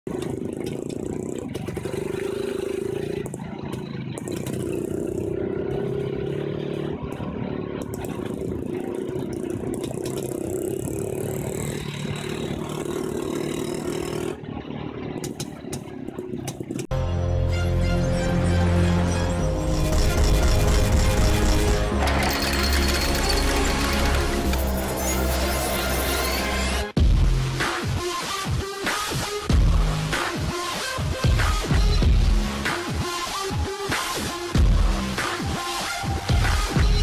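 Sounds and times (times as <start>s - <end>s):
two-stroke motorcycle engine buzzing: 0.1s - 16.9s.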